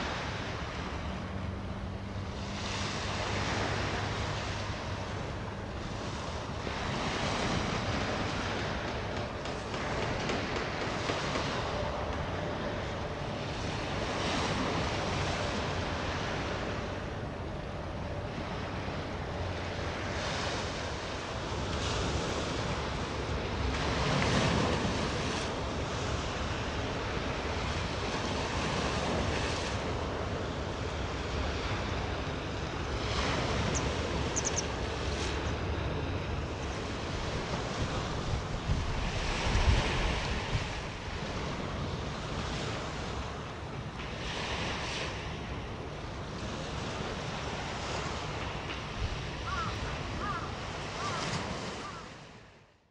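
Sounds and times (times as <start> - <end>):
sea waves washing ashore: 0.0 - 52.9
wind buffeting microphone: 17.6 - 51.9.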